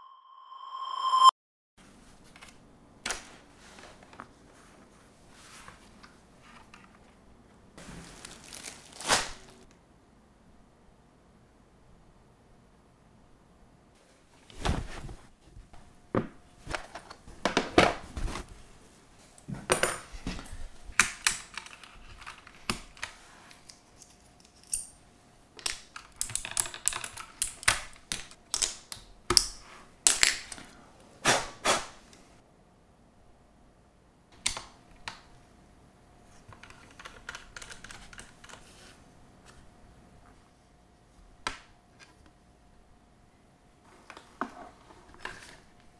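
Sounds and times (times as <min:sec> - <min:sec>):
keycaps pulled off keyboard: 0:36.5 - 0:38.6.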